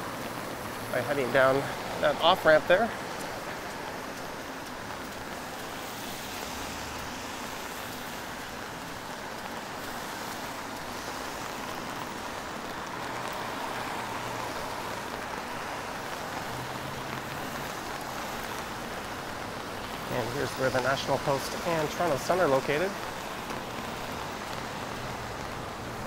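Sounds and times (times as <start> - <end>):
rain hiss: 0.0 - 26.0
traffic on wet street: 0.0 - 26.0.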